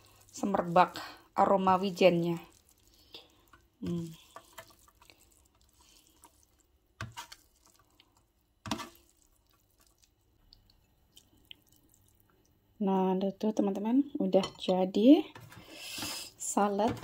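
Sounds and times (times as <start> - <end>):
spinach tossed in metal tray: 0.0 - 8.0, 8.6 - 10.0.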